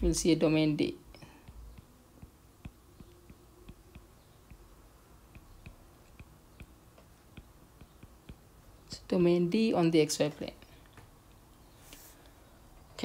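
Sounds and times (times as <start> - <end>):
stylus tapping on glass screen: 1.2 - 4.7, 5.3 - 8.5.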